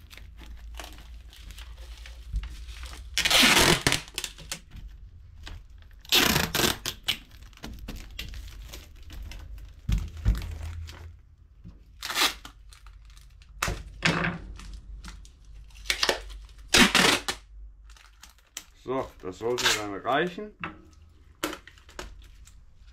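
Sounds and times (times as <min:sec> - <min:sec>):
tape pulled and torn: 0:00.0 - 0:04.8, 0:05.4 - 0:09.5, 0:11.8 - 0:13.9, 0:14.6 - 0:18.7, 0:19.4 - 0:20.0
wrapping crinkling: 0:00.0 - 0:22.9.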